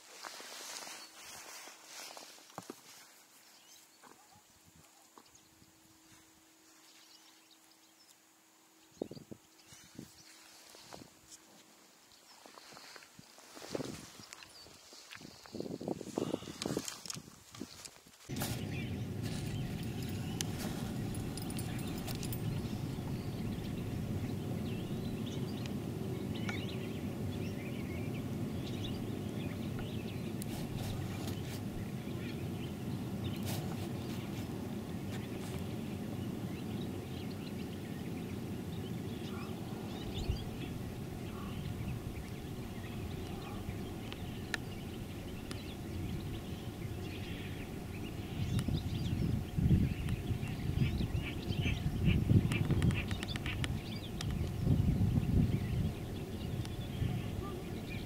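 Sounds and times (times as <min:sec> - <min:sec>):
faint bird chirps: 0:18.3 - 0:58.0
low outdoor rumble: 0:18.3 - 0:58.0.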